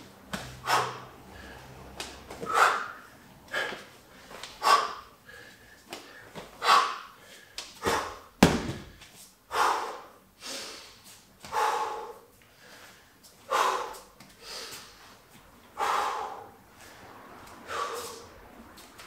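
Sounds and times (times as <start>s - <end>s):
man breathing heavily: 0.0s - 19.0s
bag thudding on gym mat: 8.4s - 9.0s.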